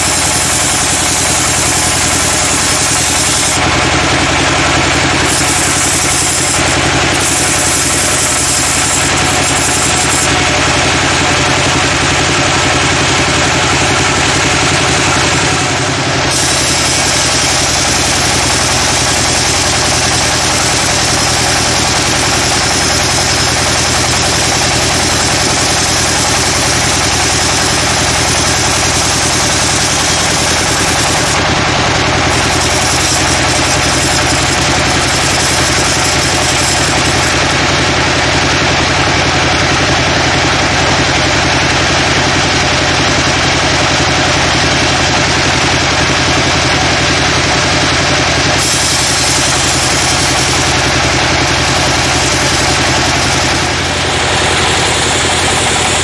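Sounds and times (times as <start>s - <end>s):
saw blade hissing in wood: 0.0s - 10.4s, 16.2s - 31.5s, 32.2s - 37.9s, 48.6s - 56.0s
sawmill engine drone: 0.0s - 56.0s.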